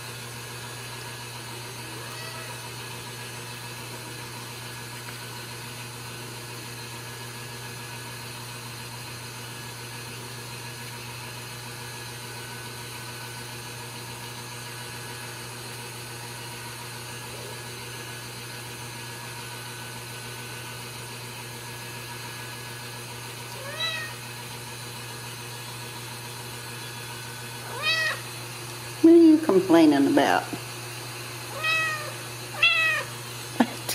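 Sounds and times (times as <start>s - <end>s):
kitten meowing: 2.0s - 2.6s, 23.5s - 24.2s, 27.6s - 28.2s, 31.5s - 33.1s.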